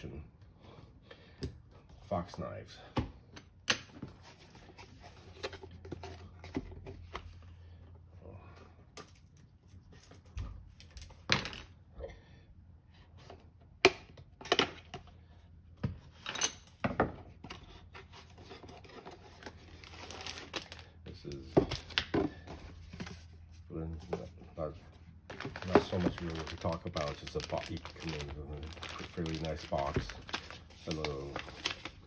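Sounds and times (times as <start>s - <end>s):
cardboard rustling: 21.4s - 32.0s.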